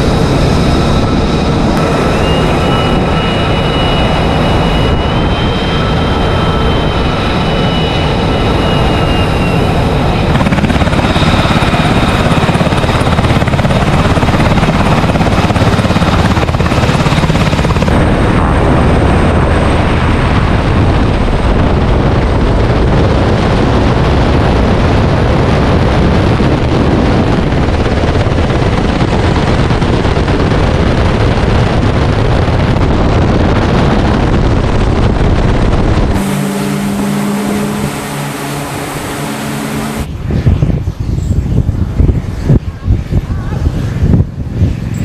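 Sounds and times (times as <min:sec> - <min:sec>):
helicopter turbines and rotors roaring: 0:00.0 - 0:45.0
machinery hum with held tones: 0:00.6 - 0:11.9, 0:36.2 - 0:40.2.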